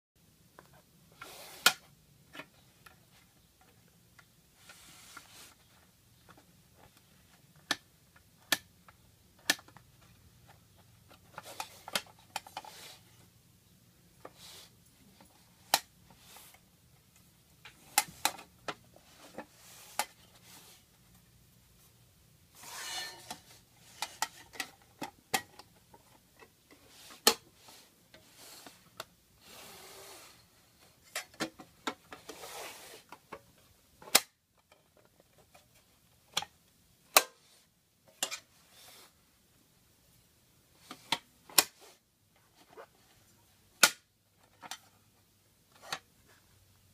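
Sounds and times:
rustling: 0.6 - 7.6.

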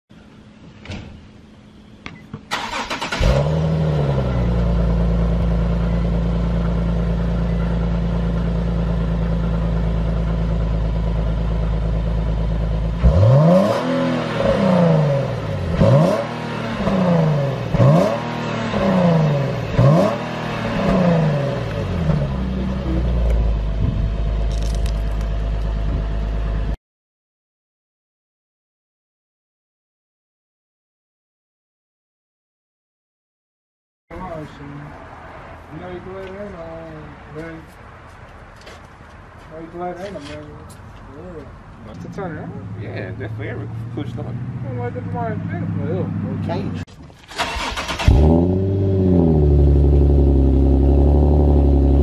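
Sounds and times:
car engine idling: 1.4 - 13.3, 20.6 - 26.8, 39.6 - 52.0
car engine revving: 2.5 - 26.7, 41.9 - 52.0.

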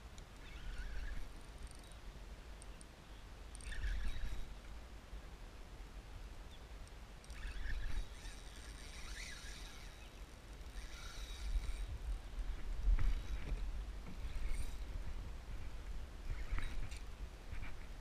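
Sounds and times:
fishing reel drag buzzing: 0.2 - 2.0, 3.5 - 4.6, 7.2 - 15.2, 16.2 - 17.8.

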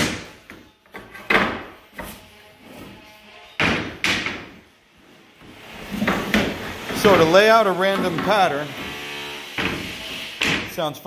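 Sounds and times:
wooden planks clattering: 5.4 - 8.6.

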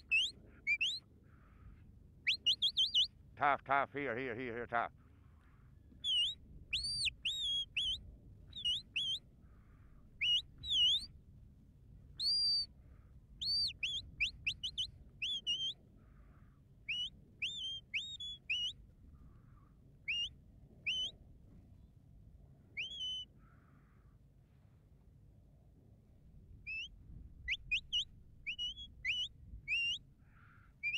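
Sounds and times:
sheepdog whistle commands: 0.0 - 1.0, 2.3 - 3.1, 12.2 - 12.7, 13.5 - 15.8, 20.9 - 21.1, 22.8 - 23.3, 26.7 - 26.9.

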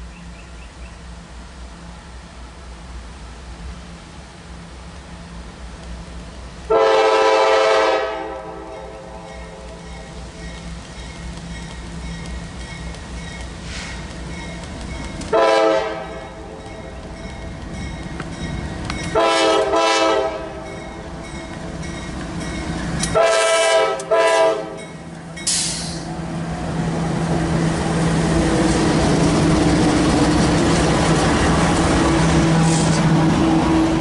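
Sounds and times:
locomotive engine: 0.0 - 34.0
train wheels on rails: 0.0 - 34.0
locomotive air horn blasts: 6.7 - 9.6, 15.3 - 16.6, 19.1 - 20.8, 23.1 - 24.9
brief hiss: 13.6 - 14.1, 25.4 - 26.2.

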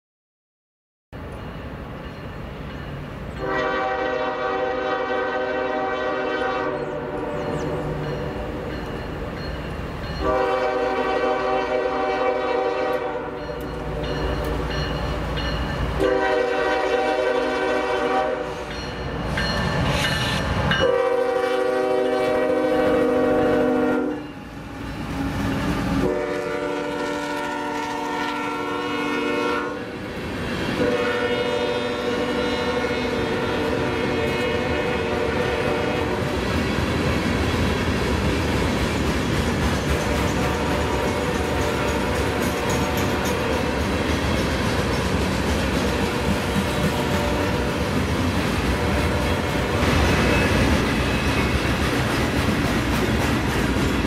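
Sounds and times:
train rumble: 1.2 - 54.0
locomotive air horn blasts: 3.4 - 7.5, 10.2 - 14.0, 16.0 - 18.7, 20.8 - 24.2, 26.0 - 29.9, 30.8 - 36.4, 46.0 - 47.9, 48.8 - 50.6.

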